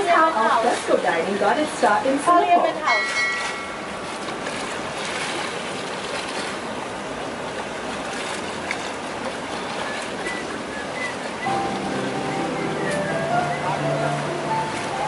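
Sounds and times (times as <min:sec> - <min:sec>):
water rushing along boat hull: 0:00.0 - 0:15.0.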